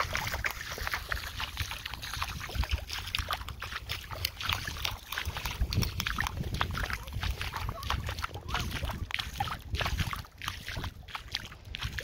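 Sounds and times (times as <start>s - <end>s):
footsteps splashing in water: 0.0s - 12.0s
wind on microphone: 0.0s - 12.0s.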